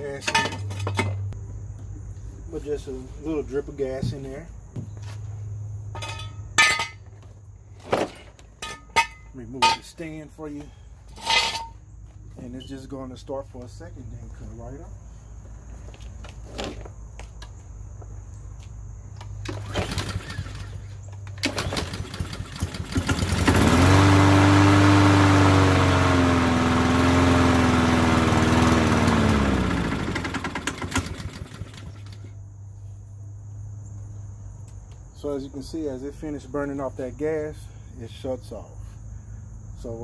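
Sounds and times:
lawn mower engine running: 19.4s - 32.3s
short engine rattles: 19.4s - 32.3s.

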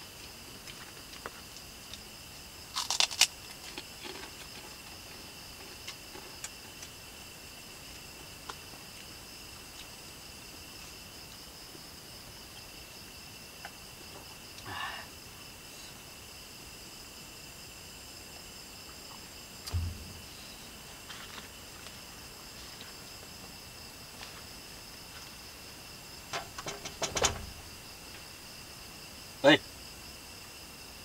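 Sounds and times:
night insects chirring: 0.0s - 31.0s
food wrapper crinkling: 2.8s - 4.2s.

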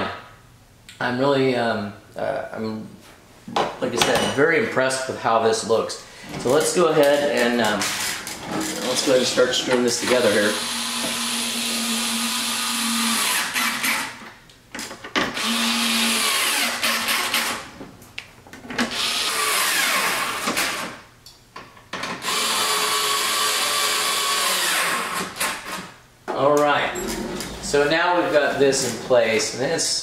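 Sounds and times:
cordless drill driving screws: 10.1s - 14.2s, 15.4s - 17.6s, 18.8s - 20.9s, 22.2s - 25.8s.

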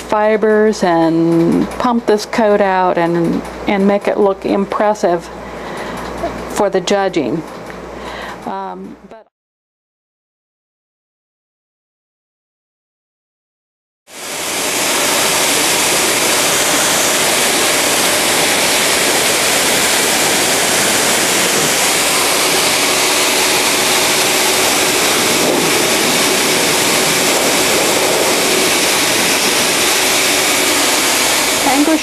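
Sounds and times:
grooming blower rushing air: 14.1s - 32.0s.

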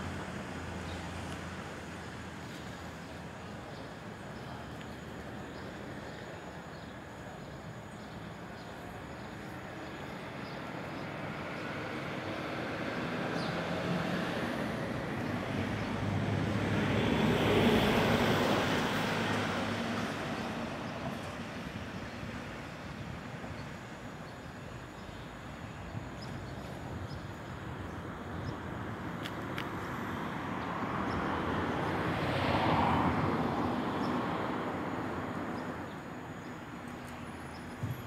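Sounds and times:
vehicle passing by: 11.4s - 21.6s.

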